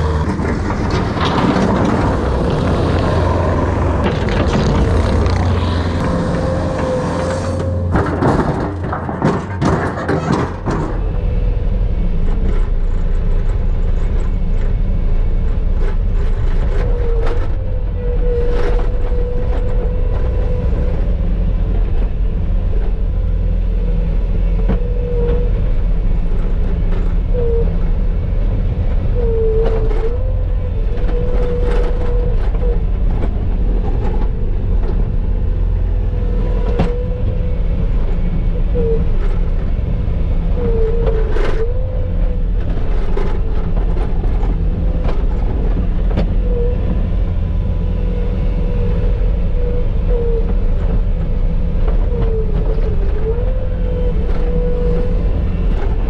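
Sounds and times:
knocks and clanks: 0.0s - 11.1s
engine whine: 0.0s - 56.0s
skid steer engine running: 0.0s - 56.0s.

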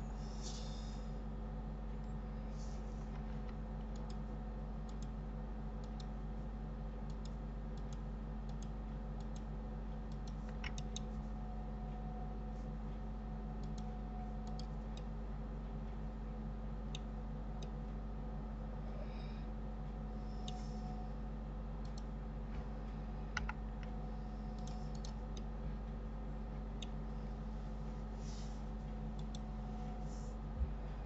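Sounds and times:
low electrical hum: 0.0s - 31.0s
mouse and keyboard clicks: 10.1s - 11.1s.

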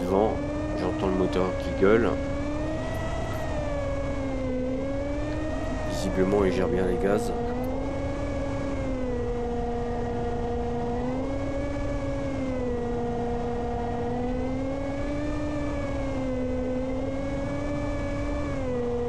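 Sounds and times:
electric motor and propeller whine: 0.0s - 19.0s
low wind rumble: 0.0s - 19.0s.

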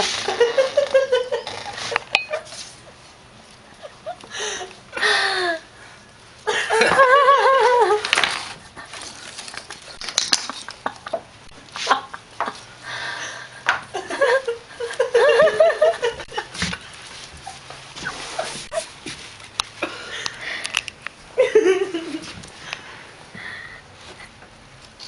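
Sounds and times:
kitten scuffling: 15.0s - 19.7s.

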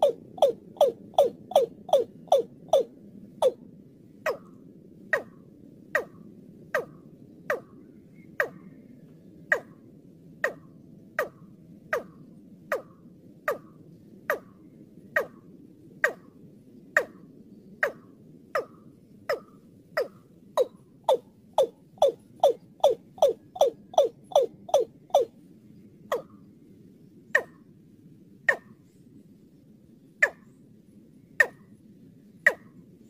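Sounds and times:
bird calling sharp notes: 0.0s - 3.6s, 20.0s - 25.3s.

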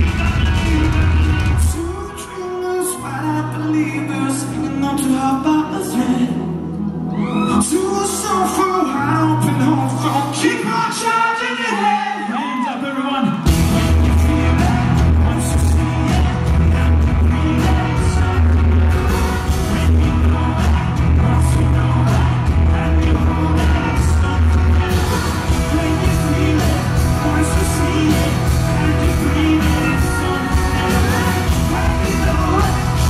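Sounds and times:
drums: 0.0s - 6.2s, 12.2s - 33.0s
heavy bass: 0.0s - 6.2s, 13.4s - 33.0s
live pop-rock band playing: 0.0s - 33.0s.

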